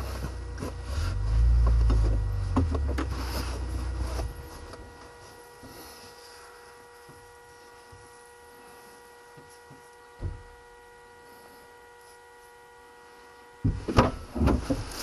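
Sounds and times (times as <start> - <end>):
low rumbling and rubbing: 0.0 - 4.7
faint steady hum: 0.0 - 15.0.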